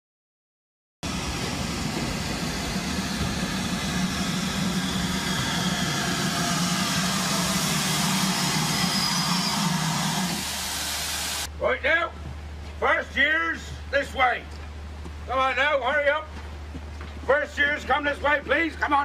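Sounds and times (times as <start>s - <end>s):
locomotive low rumble: 1.0s - 10.7s
steam hissing: 1.0s - 11.5s.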